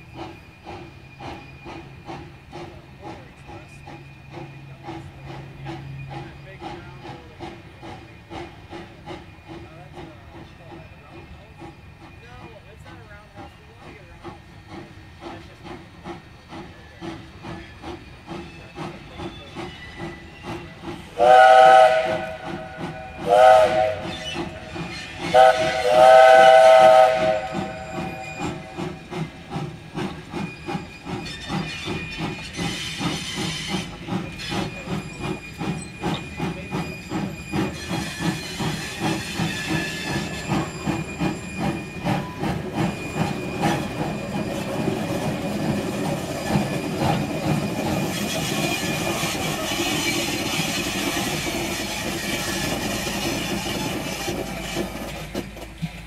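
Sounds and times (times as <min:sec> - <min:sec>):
steam hissing: 0:00.0 - 0:55.6
steam locomotive chuffing: 0:00.0 - 0:56.0
steam whistle: 0:21.1 - 0:28.9.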